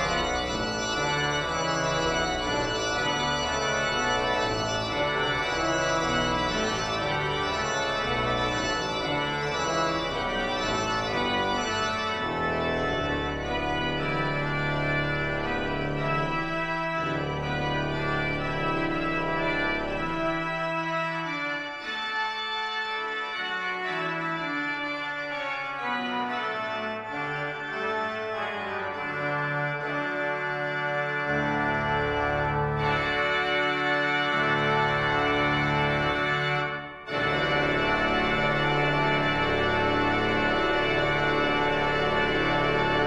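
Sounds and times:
church organ chords: 0:00.0 - 0:43.0.

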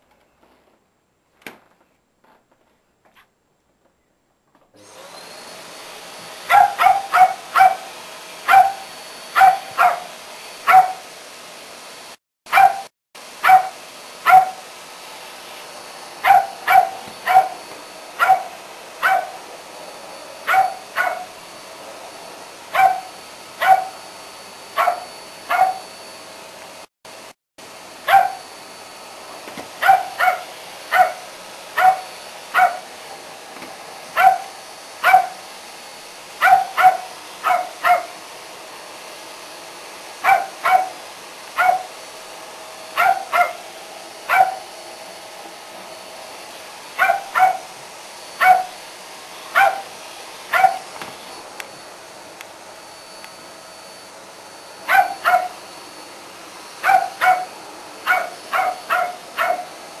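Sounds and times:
dog barking: 0:06.4 - 0:11.0, 0:12.5 - 0:14.6, 0:16.2 - 0:17.6, 0:18.2 - 0:19.4, 0:20.4 - 0:21.3, 0:22.7 - 0:24.0, 0:24.8 - 0:25.8, 0:28.1 - 0:28.4, 0:29.8 - 0:32.9, 0:34.2 - 0:35.4, 0:36.4 - 0:38.2, 0:40.2 - 0:41.0, 0:41.6 - 0:41.9, 0:43.0 - 0:43.6, 0:44.3 - 0:44.7, 0:47.0 - 0:47.7, 0:48.4 - 0:48.8, 0:49.5 - 0:49.9, 0:50.5 - 0:50.9, 0:54.9 - 0:55.6, 0:56.8 - 0:59.7.

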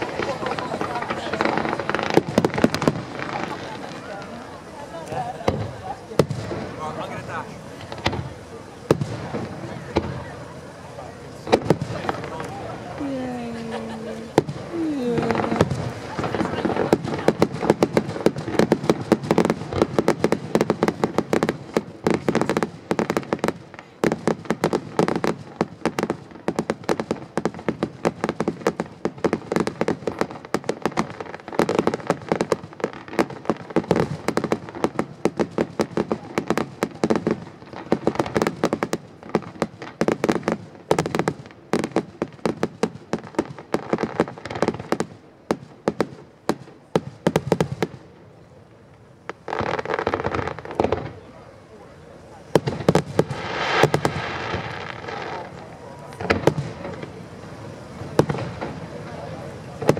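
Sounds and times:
firework bangs and crackles: 0:00.0 - 0:59.9.

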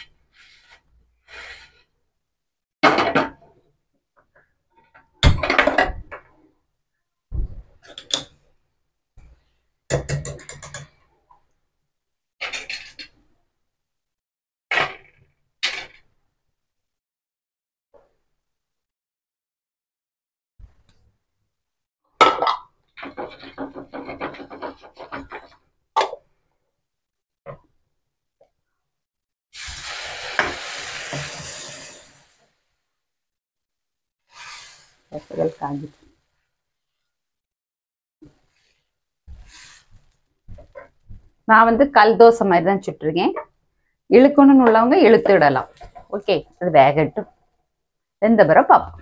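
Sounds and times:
scraping strokes on griddle: 0:00.3 - 0:01.9, 0:34.3 - 0:35.6, 0:38.5 - 0:40.1
cookware knocking and clattering: 0:09.9 - 0:11.0, 0:22.2 - 0:26.2.

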